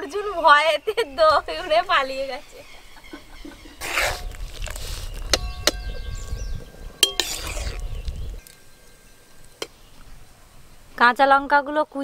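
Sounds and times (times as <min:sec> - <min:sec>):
metal ladle clinking on pot: 0:07.0 - 0:08.7.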